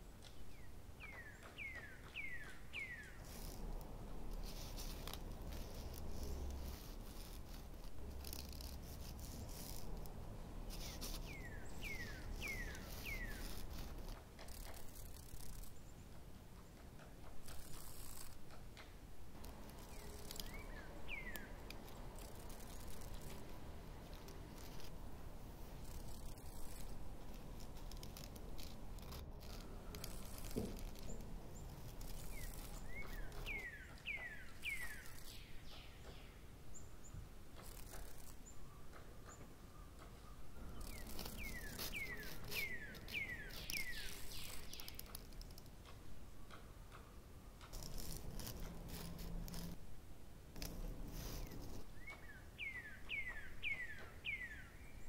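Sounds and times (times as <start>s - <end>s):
faint rustling: 0.0s - 54.7s
bird chirps: 0.2s - 3.6s, 10.7s - 16.8s, 19.6s - 23.5s, 25.8s - 49.8s, 50.6s - 55.0s.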